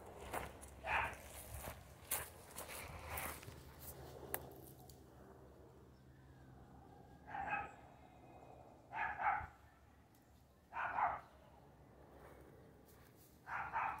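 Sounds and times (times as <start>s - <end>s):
dog barking: 0.8s - 1.3s, 7.2s - 7.8s, 8.9s - 9.6s, 10.7s - 11.3s, 13.5s - 14.0s.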